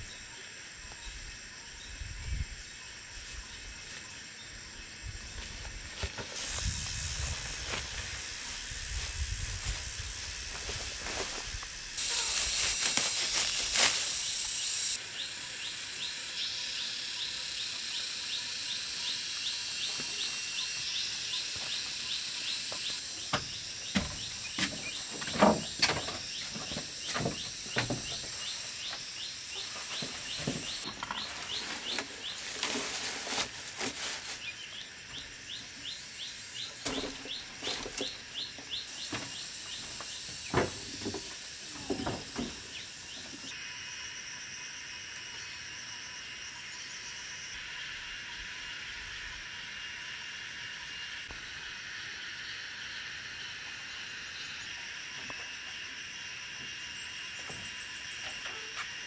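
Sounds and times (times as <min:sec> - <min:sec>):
steady high hiss: 0:00.0 - 0:59.0
plants rustling: 0:05.4 - 0:14.2, 0:29.7 - 0:34.7
rapid repeated chirping: 0:12.0 - 0:32.4.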